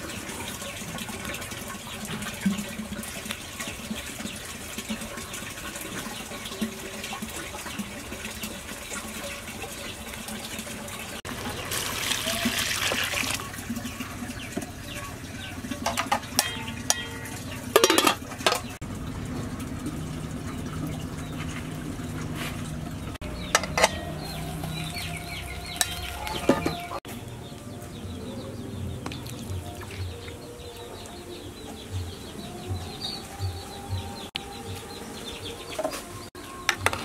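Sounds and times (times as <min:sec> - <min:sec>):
metal pot and lid clattering: 0:15.6 - 0:18.8, 0:23.4 - 0:24.4
chickens clucking: 0:20.5 - 0:27.1.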